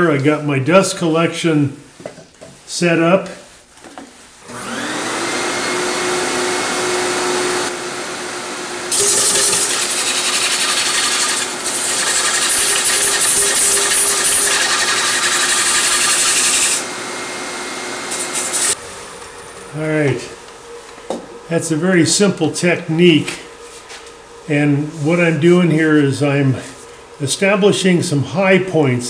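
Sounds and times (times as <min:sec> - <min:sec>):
dust collector running: 0:04.4 - 0:29.0
wood lathe whine: 0:04.5 - 0:21.4
sandpaper hissing on spinning wood: 0:08.9 - 0:16.9, 0:18.1 - 0:18.8.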